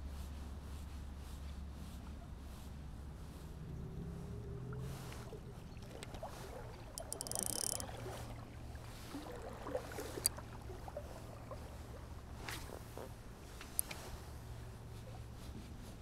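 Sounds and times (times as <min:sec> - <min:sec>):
fishing reel ticks and clicks: 0:05.8 - 0:06.2, 0:06.9 - 0:08.1, 0:10.1 - 0:10.4, 0:13.6 - 0:14.0.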